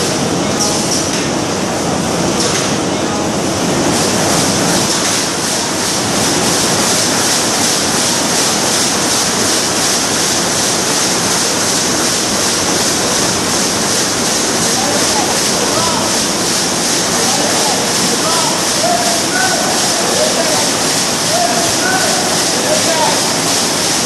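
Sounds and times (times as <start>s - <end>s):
embroidery machine running: 0.0s - 24.0s.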